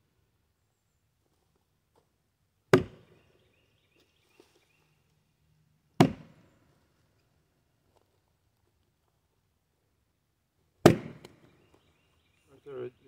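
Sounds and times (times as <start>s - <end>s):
axe chopping into log: 2.7s - 3.2s, 6.0s - 6.5s, 10.8s - 11.5s.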